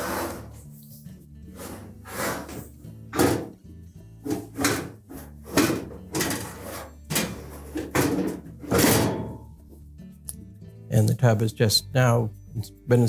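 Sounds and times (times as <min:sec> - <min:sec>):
dryer drum clunking and scraping: 0:01.6 - 0:09.6.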